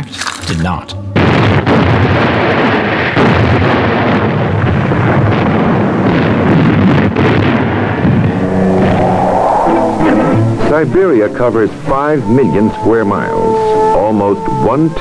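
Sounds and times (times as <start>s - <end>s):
explosions and artillery fire: 1.2s - 9.0s
sharp blasts: 6.4s - 12.7s.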